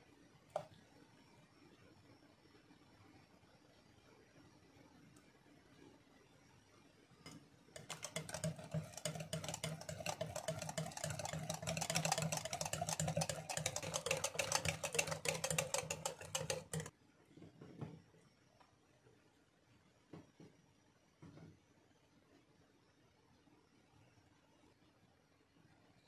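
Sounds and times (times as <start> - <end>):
whisk clicking against glass bowl: 7.3 - 16.9.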